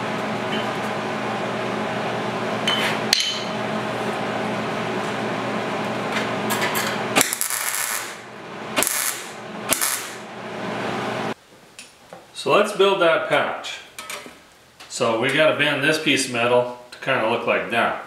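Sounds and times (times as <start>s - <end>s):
steady hum: 0.0s - 11.4s.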